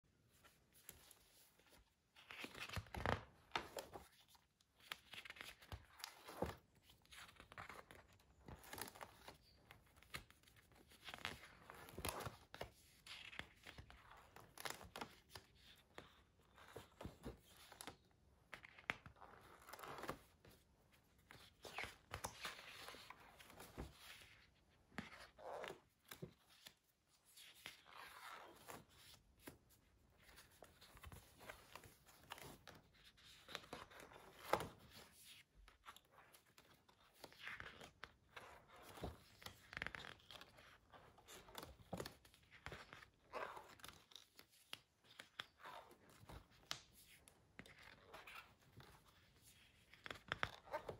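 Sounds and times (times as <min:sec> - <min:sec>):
sketchbook pages turning: 0:00.3 - 0:50.9.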